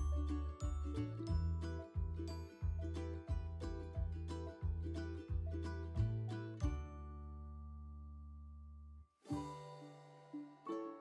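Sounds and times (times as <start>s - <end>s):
plucked string chords: 0.0s - 8.0s.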